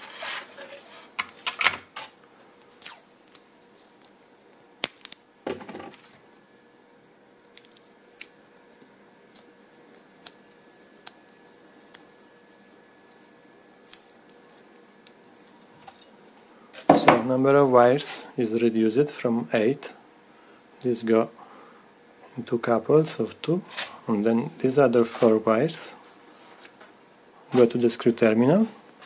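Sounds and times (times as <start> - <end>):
tape tearing and rustling: 0.0 - 1.0, 1.9 - 4.2.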